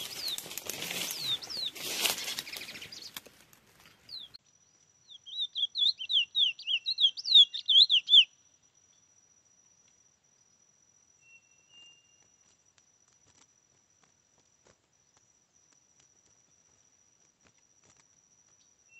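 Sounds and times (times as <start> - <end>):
finch singing whistled notes: 0.0 - 3.2, 4.1 - 4.4, 5.0 - 8.4
rustling: 0.0 - 4.4
falling whistles: 1.0 - 3.0, 5.2 - 8.4.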